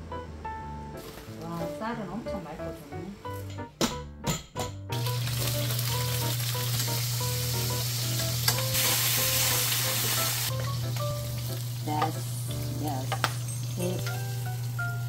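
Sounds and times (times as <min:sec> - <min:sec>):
fish sizzling in oil: 0:05.0 - 0:15.0.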